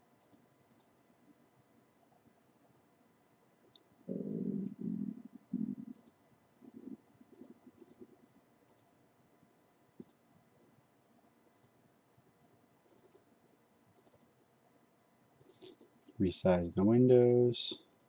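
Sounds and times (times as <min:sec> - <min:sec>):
computer mouse clicks: 0:00.2 - 0:00.9, 0:05.8 - 0:06.2, 0:06.8 - 0:08.1, 0:08.7 - 0:08.9, 0:10.0 - 0:10.2, 0:11.5 - 0:11.8, 0:12.9 - 0:13.3, 0:14.0 - 0:14.3, 0:15.4 - 0:15.9, 0:17.7 - 0:18.0.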